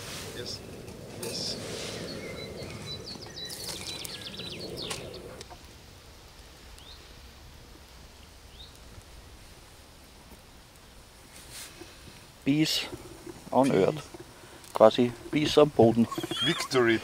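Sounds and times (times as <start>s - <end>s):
outdoor background noise: 0.0s - 17.0s
birds singing: 0.4s - 5.5s, 15.0s - 17.0s.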